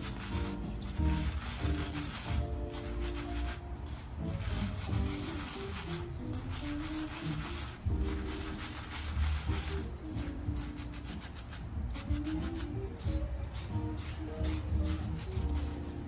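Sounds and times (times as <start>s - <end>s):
spatula scraping a mesh sieve: 0.0s - 16.0s.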